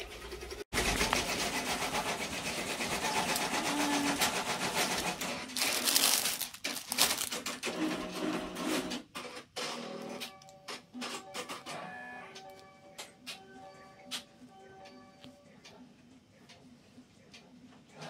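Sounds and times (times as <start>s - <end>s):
embroidery machine clatter: 0.0s - 11.8s
plastic bags crinkling: 3.3s - 7.9s.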